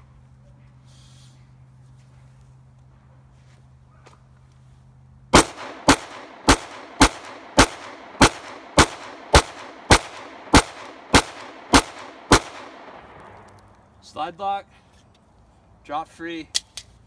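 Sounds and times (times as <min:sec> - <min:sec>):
pistol shots with short echo: 0:05.3 - 0:13.4.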